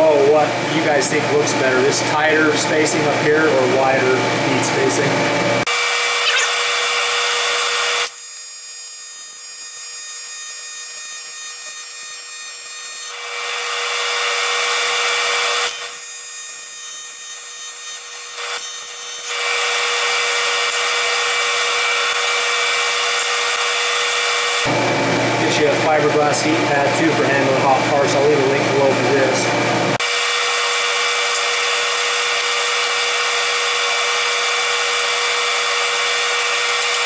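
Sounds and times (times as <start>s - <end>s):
welding arc buzzing: 4.7s - 25.1s, 29.7s - 37.0s.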